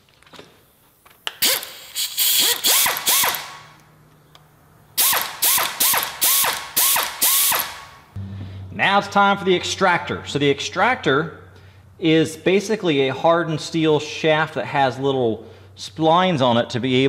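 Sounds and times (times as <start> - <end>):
hand ratchet clicking: 1.3 - 3.6, 5.0 - 7.8.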